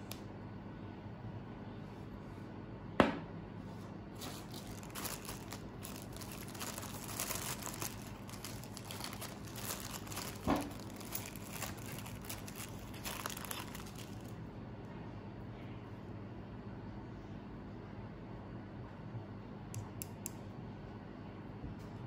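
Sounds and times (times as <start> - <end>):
plastic bag crinkling: 4.2 - 14.4.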